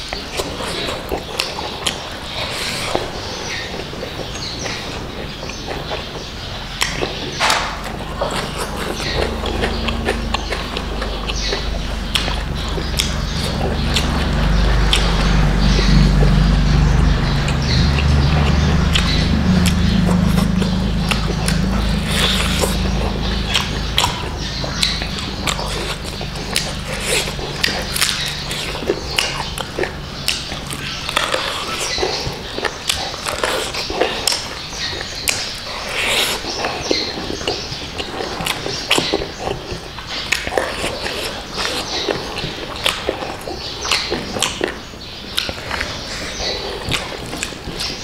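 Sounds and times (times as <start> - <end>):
low steady hum: 0.0 - 35.7
lip smacks: 0.0 - 48.0
person chewing food: 0.0 - 48.0
wet mouth clicks: 6.7 - 48.0.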